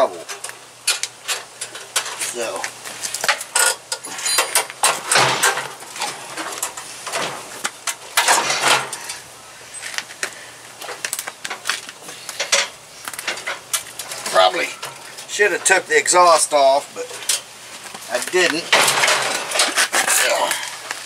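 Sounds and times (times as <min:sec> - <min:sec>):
metal clanks and knocks: 0:03.2 - 0:09.2, 0:18.4 - 0:19.8
metal scrapes: 0:08.2 - 0:09.2.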